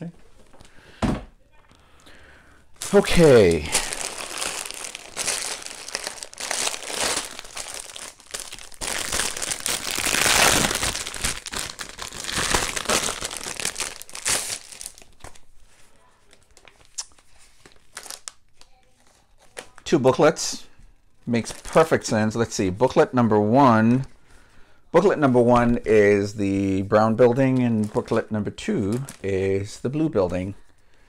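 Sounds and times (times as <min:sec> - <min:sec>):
plastic bags crinkling: 0:02.8 - 0:15.7, 0:16.3 - 0:19.9, 0:27.5 - 0:30.9.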